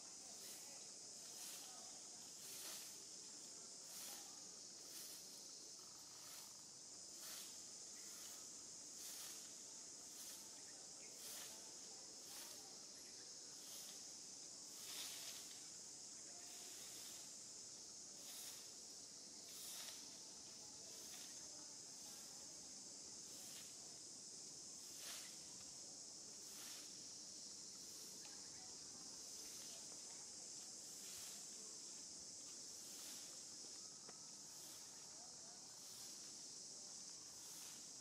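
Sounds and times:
high-pitched insect buzz: 0:00.4 - 0:17.6.

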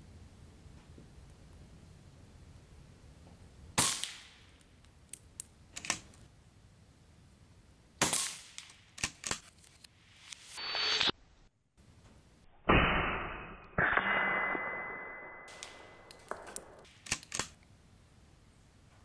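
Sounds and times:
swelling noise: 0:10.0 - 0:11.2.

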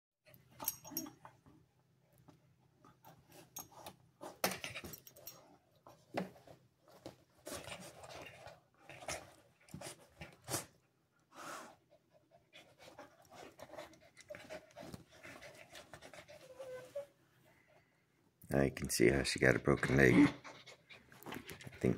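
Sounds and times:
dogs panting: 0:11.6 - 0:16.8, 0:19.5 - 0:21.9.

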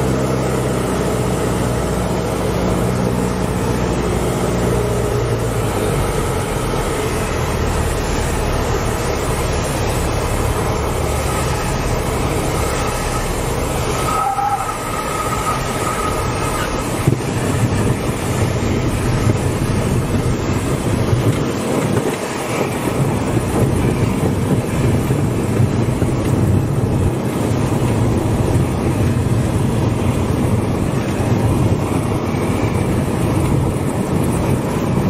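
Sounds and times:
aircraft engine running: 0:00.0 - 0:35.0
wheels rumbling on runway: 0:00.0 - 0:35.0.

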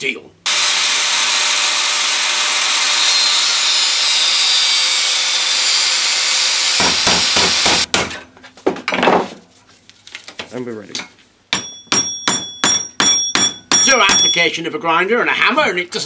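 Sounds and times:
angle grinder cutting steel: 0:00.5 - 0:07.9.

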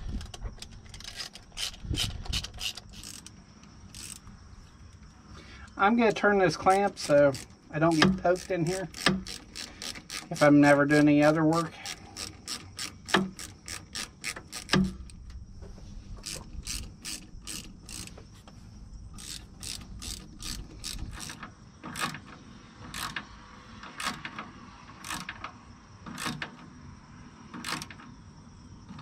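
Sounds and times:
hand ratchet clicking: 0:00.0 - 0:04.3, 0:06.5 - 0:15.3, 0:16.2 - 0:18.3, 0:19.2 - 0:25.4, 0:26.1 - 0:26.6, 0:27.6 - 0:28.0.

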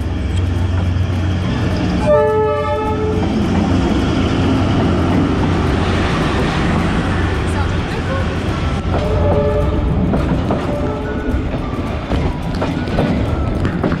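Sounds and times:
locomotive engine rumbling: 0:00.0 - 0:14.0
train coaches rumbling past: 0:00.0 - 0:14.0
train horn blast: 0:02.0 - 0:03.4, 0:09.0 - 0:10.0.

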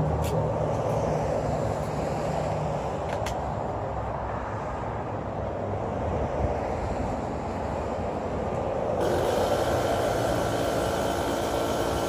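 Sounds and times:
air compressor running: 0:09.0 - 0:12.0.

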